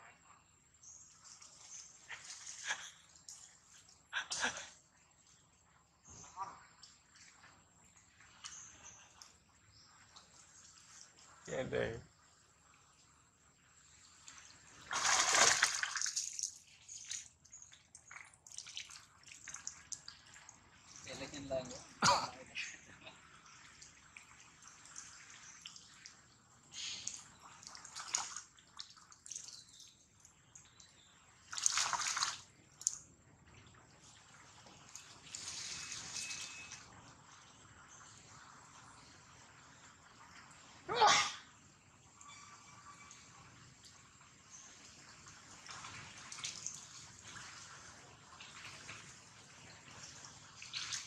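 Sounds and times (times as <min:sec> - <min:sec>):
muddy water splashing: 0:01.2 - 0:04.7, 0:13.9 - 0:26.2, 0:26.8 - 0:29.9, 0:31.3 - 0:33.0, 0:44.8 - 0:51.0.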